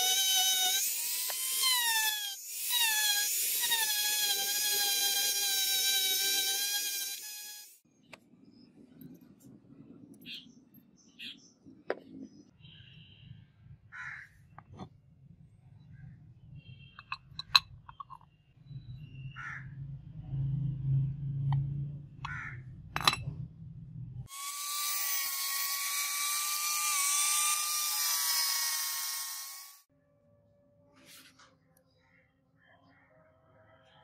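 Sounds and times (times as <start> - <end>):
angle grinder cutting metal sheet: 0.0 - 7.8, 24.3 - 29.9
crow cawing: 13.9 - 14.3, 19.4 - 19.7, 22.3 - 22.6
metal parts clicking: 17.0 - 18.2.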